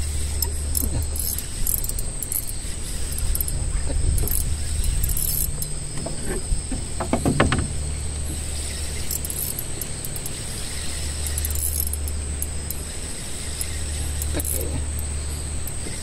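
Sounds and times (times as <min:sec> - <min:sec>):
boat engine humming: 0:00.0 - 0:16.0
insect whine: 0:00.0 - 0:16.0
clicks and knocks: 0:05.1 - 0:08.4.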